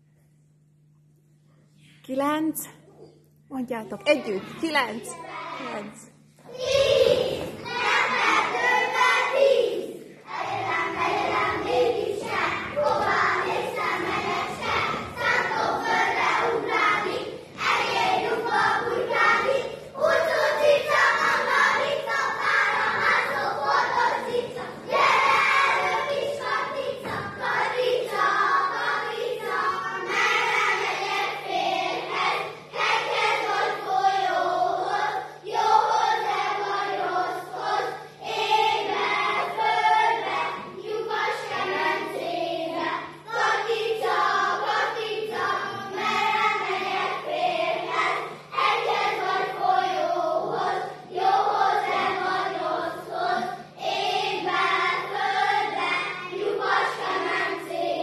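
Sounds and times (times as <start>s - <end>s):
children singing a folk song: 6.4s - 58.0s.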